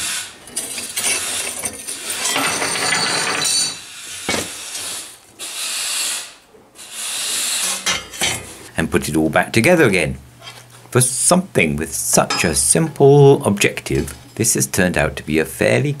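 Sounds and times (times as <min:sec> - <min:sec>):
steel parts scraping and knocking: 0:00.0 - 0:04.8, 0:12.2 - 0:12.6.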